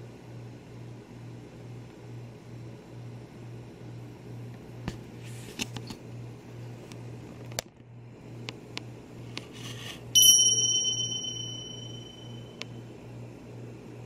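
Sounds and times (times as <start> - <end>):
low hum: 10.2 - 12.5
loud ringing ding: 10.2 - 12.6.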